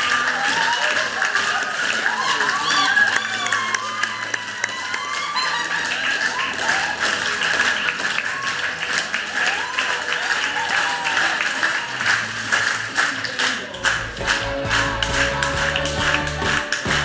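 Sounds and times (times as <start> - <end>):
people whooping: 0.0 - 12.4
audience applauding: 0.0 - 17.0
music: 0.0 - 17.0.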